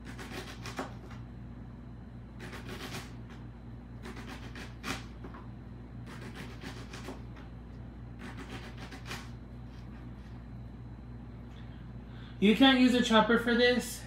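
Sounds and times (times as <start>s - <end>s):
knife slicing on cutting board: 6.0s - 7.4s.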